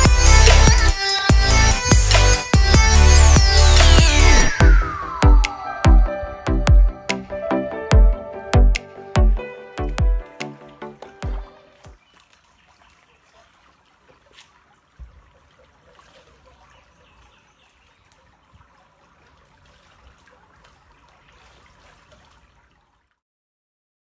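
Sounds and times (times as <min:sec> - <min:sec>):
water sloshing and trickling: 0:09.4 - 0:23.2.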